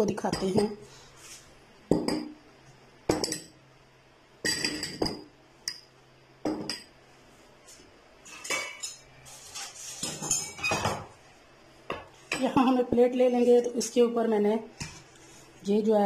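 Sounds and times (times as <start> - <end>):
glass bowls clinking: 3.1 - 3.6, 4.4 - 5.9, 8.3 - 9.1, 10.0 - 11.1.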